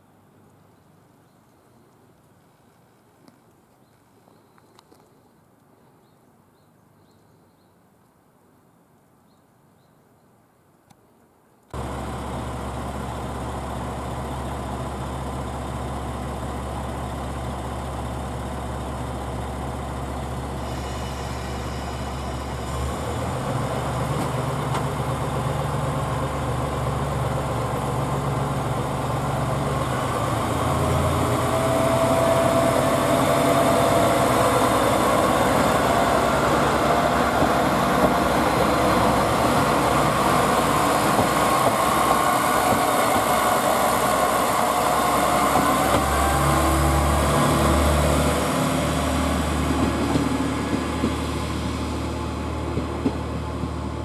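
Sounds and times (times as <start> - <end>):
diesel railcar engine idling: 11.8 - 54.0.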